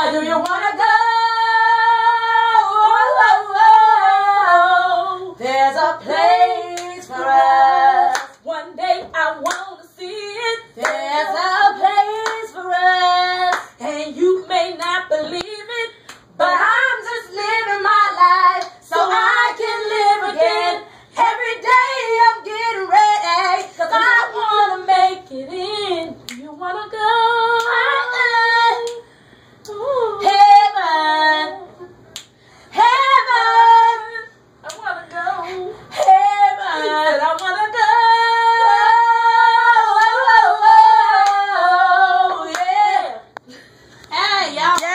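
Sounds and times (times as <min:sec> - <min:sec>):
woman singing a cappella: 0:00.0 - 0:32.1, 0:32.7 - 0:44.9.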